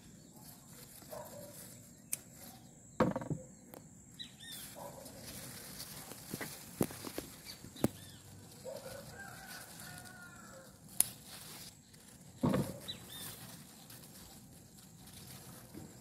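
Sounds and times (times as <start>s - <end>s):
rustle and knock of vines: 0.0s - 3.4s, 4.4s - 16.0s
distant chicken calling: 7.8s - 10.9s.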